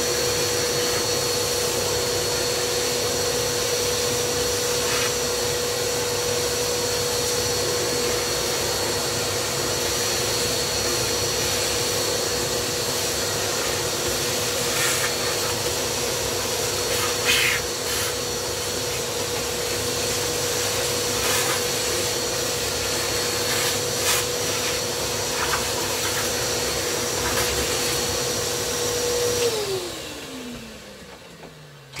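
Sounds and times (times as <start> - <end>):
shop vacuum running: 0.0 - 32.0
vacuum motor winding down: 27.8 - 32.0.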